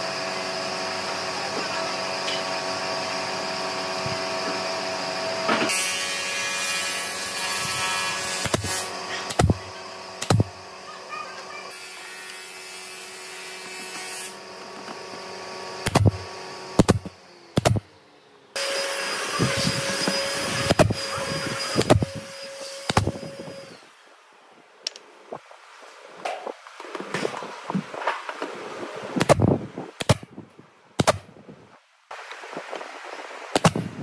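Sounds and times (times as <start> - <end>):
electric power tools humming: 0.0 - 24.1.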